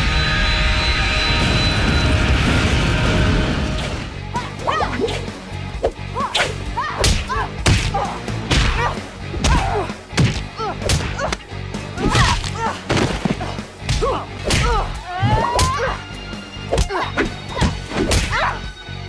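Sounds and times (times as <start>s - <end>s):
grunts and cries of effort: 6.0s - 18.6s
punch and kick hits: 6.4s - 11.4s.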